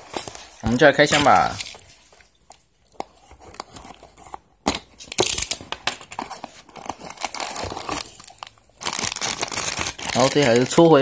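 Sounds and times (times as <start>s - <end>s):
plastic bag rustling: 0.0s - 2.4s, 6.0s - 11.0s.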